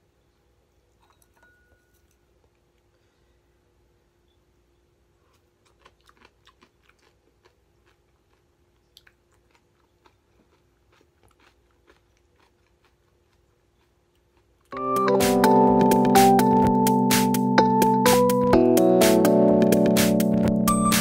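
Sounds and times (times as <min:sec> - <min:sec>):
man chewing: 0:05.1 - 0:17.1.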